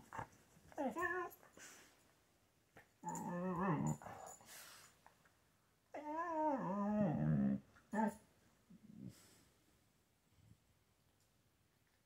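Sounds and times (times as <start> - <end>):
husky moaning: 3.0 - 4.4, 6.0 - 8.2.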